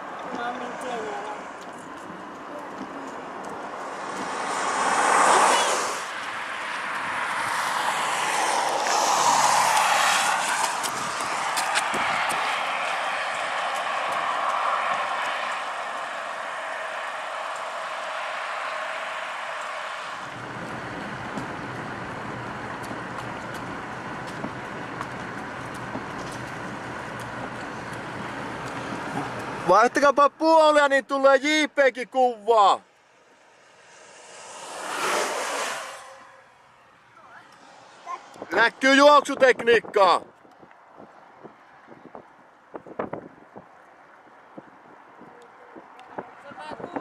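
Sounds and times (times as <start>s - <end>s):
low engine hum: 0.0s - 29.8s, 32.9s - 38.5s
road vehicles passing: 0.0s - 47.0s.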